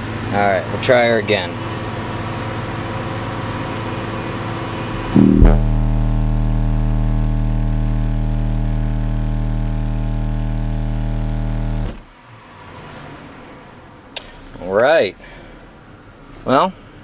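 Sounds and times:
subwoofer low bass tone: 0:05.2 - 0:12.0.

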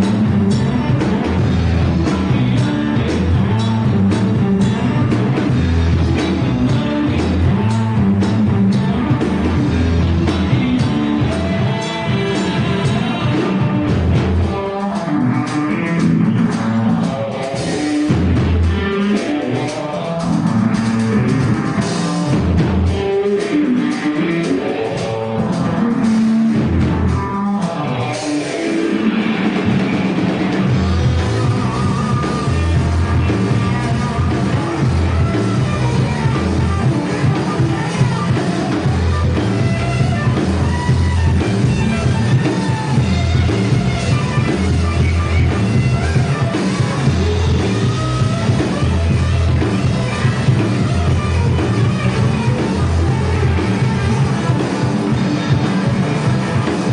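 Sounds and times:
bass guitar: 0:00.0 - 0:56.9
drum kit: 0:00.0 - 0:56.9
electric guitars: 0:00.0 - 0:56.9.

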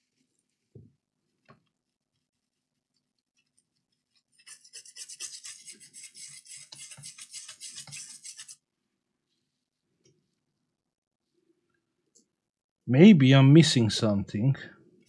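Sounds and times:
toothbrush scrubbing circuit board: 0:04.2 - 0:08.6.

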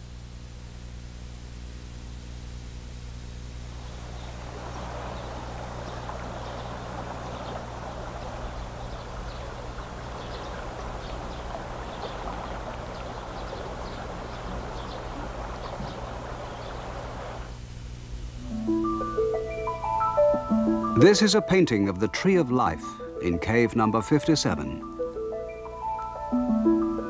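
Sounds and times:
low steady hum: 0:00.0 - 0:27.0
rushing noise with crackles: 0:03.4 - 0:18.1.

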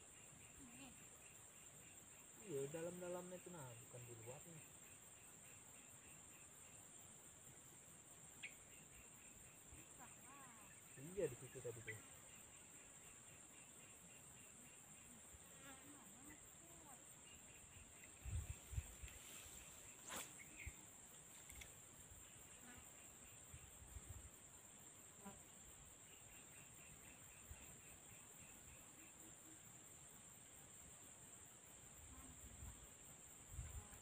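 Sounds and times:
high-pitched insect chorus: 0:00.0 - 0:34.0
sharp click: 0:21.4 - 0:21.8.

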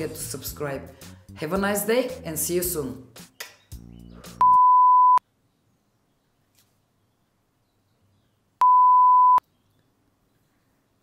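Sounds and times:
test tone beeps: 0:04.4 - 0:05.2, 0:08.6 - 0:09.4.

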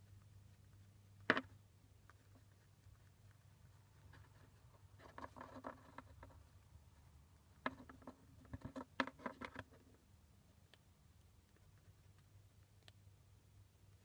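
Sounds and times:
chinchilla gnawing a nut: 0:00.0 - 0:10.0.

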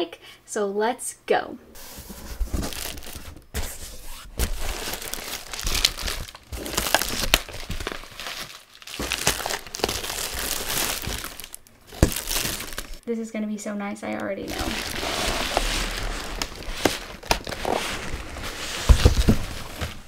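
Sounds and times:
bubble wrap crinkling: 0:01.8 - 0:13.0, 0:14.1 - 0:20.0.

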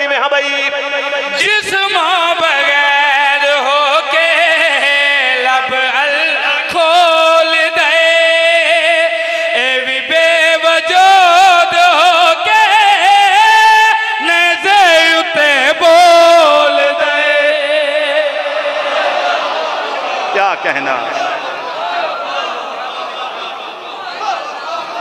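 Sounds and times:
man singing religious verse: 0:00.0 - 0:19.2.

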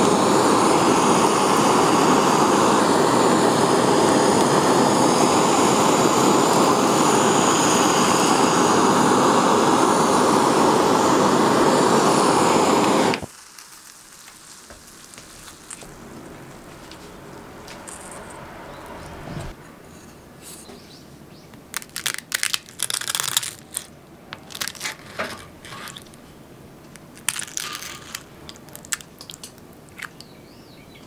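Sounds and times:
sugar crust crackling and sizzling: 0:00.0 - 0:18.7, 0:21.5 - 0:31.0
blowtorch flame rushing: 0:00.0 - 0:19.6.

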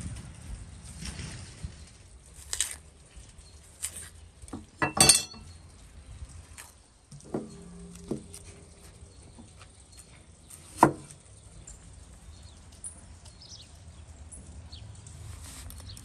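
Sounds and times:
loud metallic clink: 0:04.8 - 0:05.5
metal tray knock: 0:04.8 - 0:05.5.

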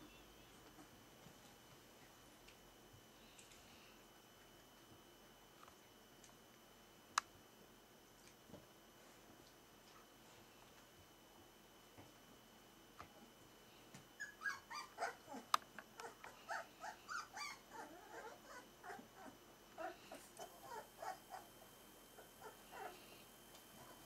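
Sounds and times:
puppies whimpering and squeaking: 0:14.2 - 0:15.4, 0:16.0 - 0:21.5.

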